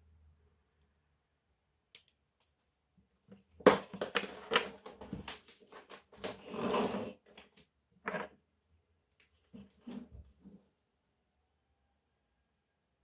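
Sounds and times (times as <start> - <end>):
scraping and rustling: 4.3 - 7.5.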